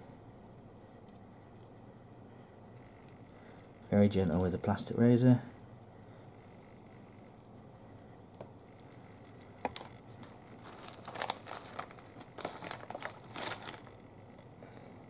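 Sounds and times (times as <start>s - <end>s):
materials crinkling and rustling: 8.8s - 14.6s.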